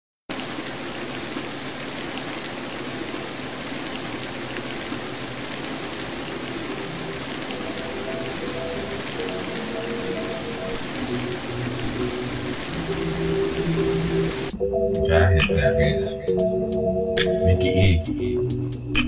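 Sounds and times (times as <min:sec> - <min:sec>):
steady rain hissing: 0:00.3 - 0:19.0
faint melody of held notes: 0:06.7 - 0:19.0.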